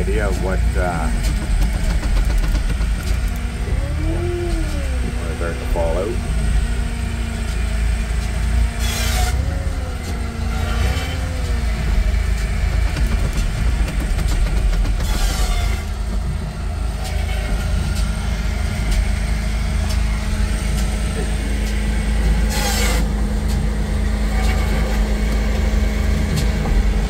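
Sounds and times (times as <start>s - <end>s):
diesel engine running: 0.0s - 27.0s
low hum: 0.0s - 27.0s
wavering whine: 3.3s - 12.4s.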